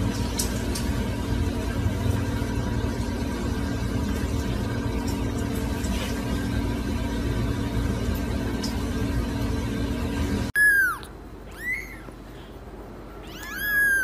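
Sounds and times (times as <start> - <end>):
low mechanical hum: 0.0 - 14.0.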